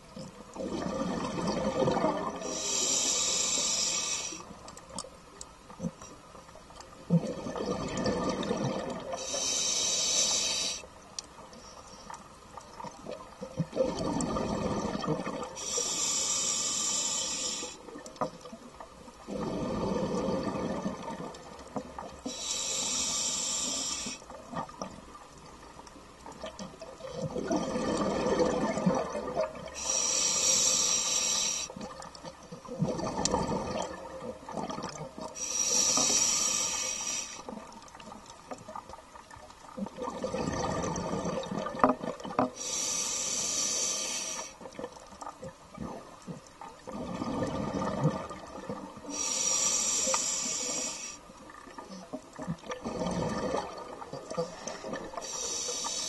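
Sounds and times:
scuba diver exhaling bubbles: 0.6 - 3.8, 7.1 - 9.6, 13.7 - 15.8, 19.3 - 21.3, 27.1 - 30.2, 46.9 - 51.0, 52.6 - 56.0
regulator inhalation hiss: 2.4 - 4.6, 9.2 - 10.9, 15.6 - 17.9, 22.2 - 24.3, 29.7 - 31.8, 35.4 - 37.6, 42.6 - 44.6, 49.0 - 51.3, 55.2 - 56.0.

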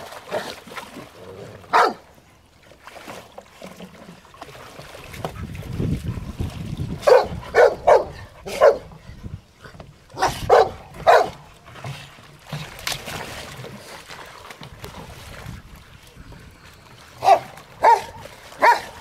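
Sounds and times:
water splashing: 0.0 - 19.0
dogs barking: 1.7 - 2.0, 7.0 - 8.9, 10.2 - 11.4, 17.2 - 19.0.

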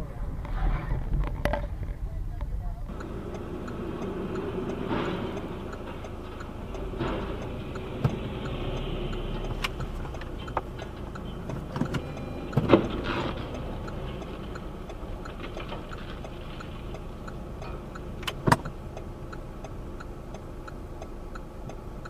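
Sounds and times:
car engine and road noise: 0.0 - 22.0
light ticking: 2.8 - 22.0
sharp knocks and thumps: 4.7 - 8.5, 9.6 - 14.6.

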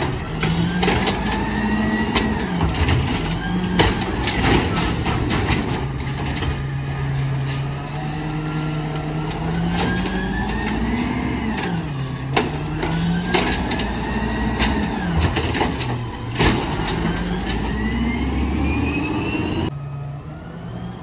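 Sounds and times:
cart banging against metal arm: 0.0 - 6.6, 8.8 - 17.7
truck engine revving: 0.0 - 21.0.

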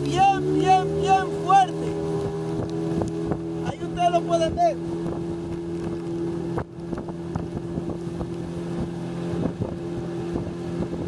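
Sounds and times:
rain: 0.0 - 3.6, 4.8 - 9.3
boat engine droning: 0.0 - 11.0
wind: 0.0 - 11.0.

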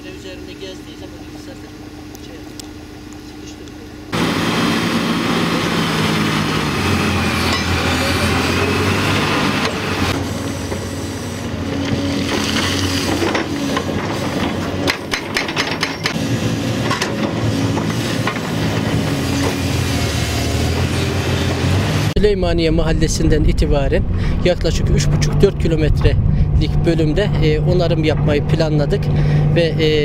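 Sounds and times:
excavator diesel engine under load: 4.1 - 22.2.

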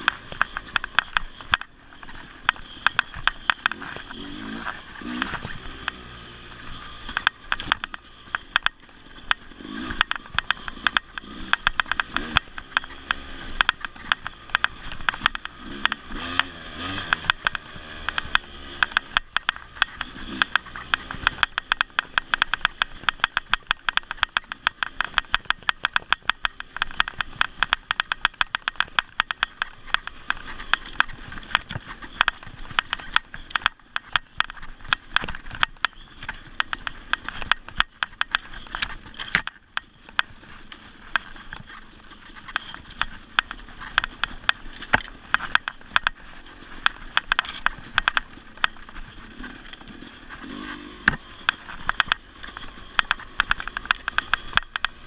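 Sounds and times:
dirt bike engine at low revs: 0.0 - 55.0.

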